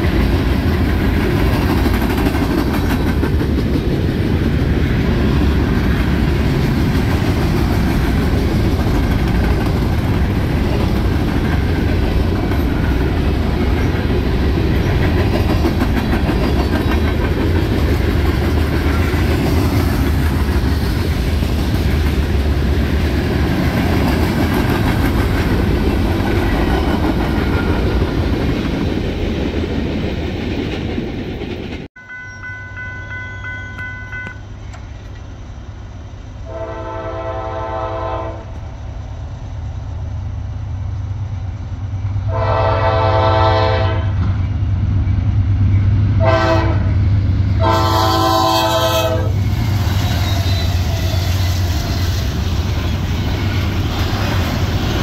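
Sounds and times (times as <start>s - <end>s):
train wheels clacking on rails: 0.0s - 35.4s, 44.2s - 55.0s
diesel locomotive engines running: 0.0s - 55.0s
train air horn blasts: 36.4s - 38.6s, 42.3s - 44.2s, 46.2s - 47.0s, 47.6s - 49.4s.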